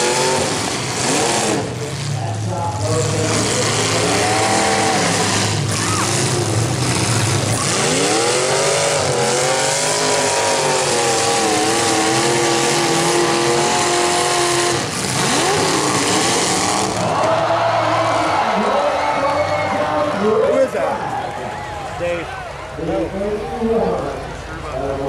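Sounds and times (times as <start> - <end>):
engine revving: 0.0 - 19.9
car engines running hard: 0.0 - 25.0.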